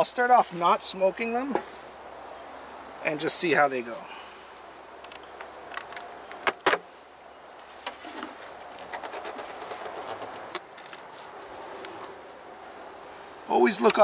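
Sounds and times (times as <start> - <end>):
hive cover knocking and scraping: 7.8 - 10.7.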